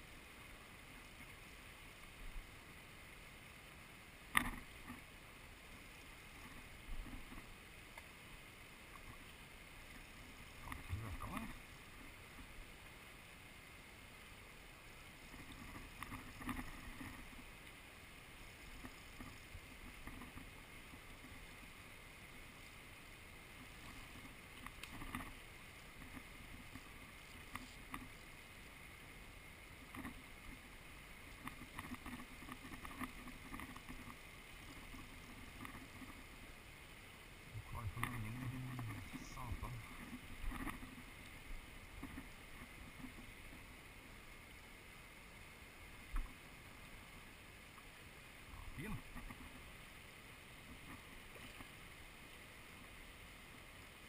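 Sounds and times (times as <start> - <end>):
river water flowing over stones: 0.0 - 54.0
small clicks and knocks: 4.3 - 5.0, 15.3 - 17.3, 24.2 - 25.4, 26.0 - 28.1, 31.4 - 36.2.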